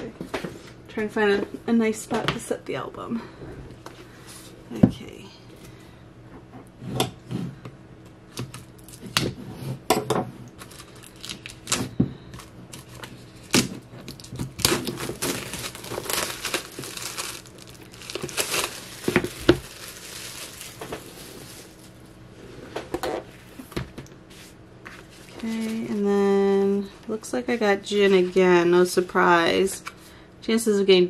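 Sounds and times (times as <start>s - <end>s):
plastic wrapping crinkling and tearing: 10.6s - 22.1s.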